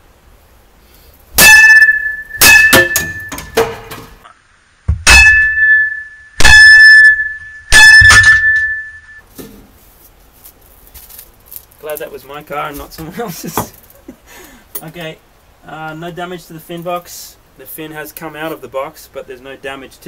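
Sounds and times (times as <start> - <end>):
bat striking plastic fin: 1.4 - 4.2.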